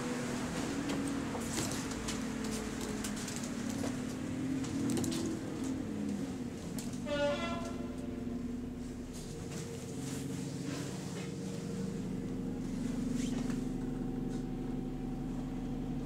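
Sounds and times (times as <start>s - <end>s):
bus engine and fan droning: 0.0s - 16.0s.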